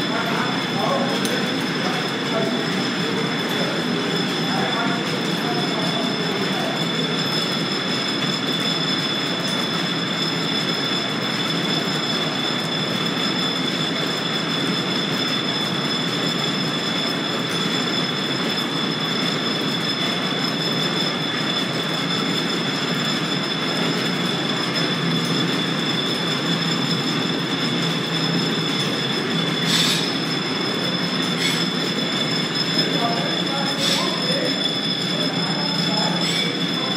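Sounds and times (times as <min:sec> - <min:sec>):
belt drive mechanical rumble: 0:00.0 - 0:36.9
high-pitched squealing tones: 0:23.6 - 0:36.9.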